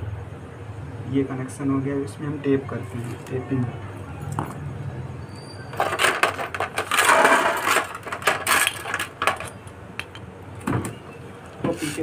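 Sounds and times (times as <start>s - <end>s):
tape ripping off roll: 5.8s - 9.2s.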